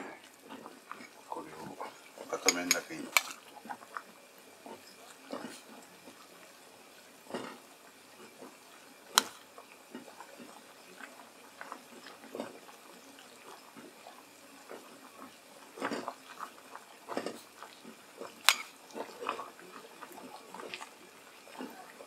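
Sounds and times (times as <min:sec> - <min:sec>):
spoon clinking against bowl: 0:02.4 - 0:02.9
spoon scraping and tapping: 0:02.4 - 0:03.3, 0:18.5 - 0:18.7.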